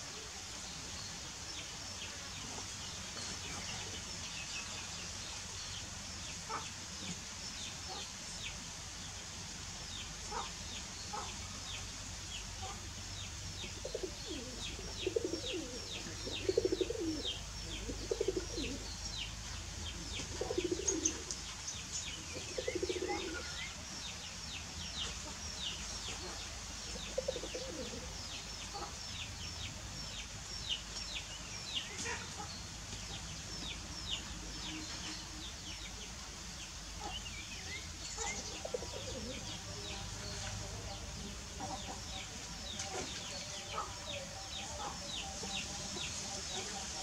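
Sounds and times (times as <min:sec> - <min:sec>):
small birds chirping: 0:10.0 - 0:47.0
low cooing calls: 0:13.8 - 0:18.8, 0:20.3 - 0:21.3, 0:22.3 - 0:23.6, 0:27.0 - 0:28.2, 0:38.2 - 0:39.4.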